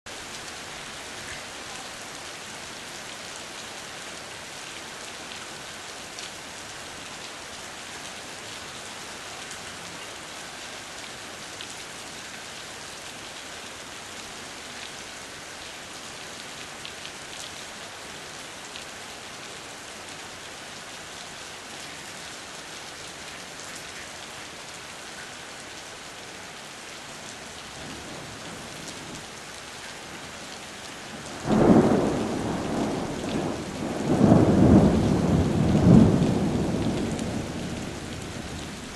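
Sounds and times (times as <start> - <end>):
heavy rain pouring: 0.1 - 38.9
low thunder rumble: 31.3 - 38.9.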